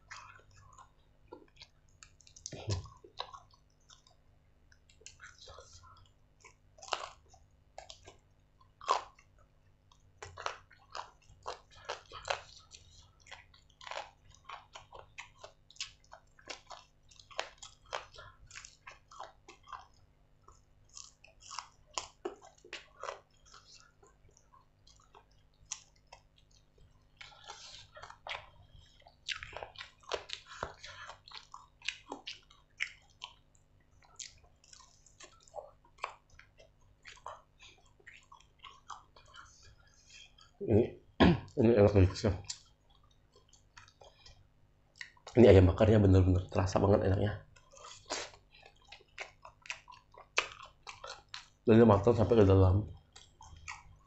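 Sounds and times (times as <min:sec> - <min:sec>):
man chewing: 0:00.0 - 0:45.4, 0:47.4 - 0:52.3, 0:52.9 - 0:54.0
wet lip smacks: 0:47.8 - 0:51.5.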